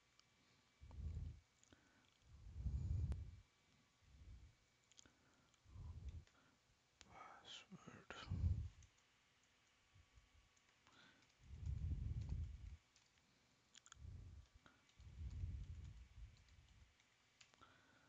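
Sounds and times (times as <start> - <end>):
low muffled rumbles: 0.8 - 1.5, 2.3 - 3.4, 5.7 - 6.4, 8.1 - 8.8, 11.4 - 12.8, 13.9 - 16.8
computer mouse clicks: 8.6 - 17.7.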